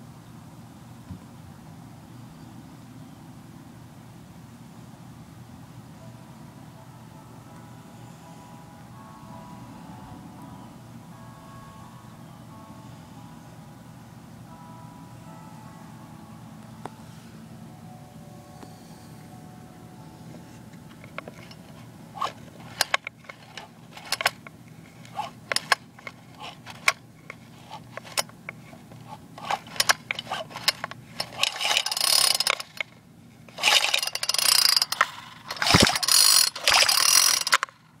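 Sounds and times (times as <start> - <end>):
rasping mechanical noise: 20.4 - 37.8
engine clutch clicking and ratcheting: 21.0 - 37.8.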